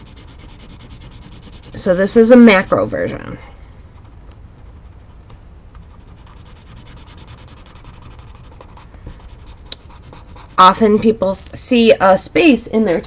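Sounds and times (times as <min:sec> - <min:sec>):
pen scribbling on paper: 0:00.0 - 0:03.2, 0:05.8 - 0:10.9.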